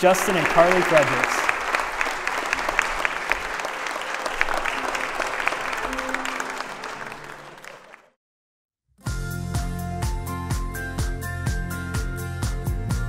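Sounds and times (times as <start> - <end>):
guests applauding: 0.0 - 8.2
music with beat and bass: 9.1 - 13.0.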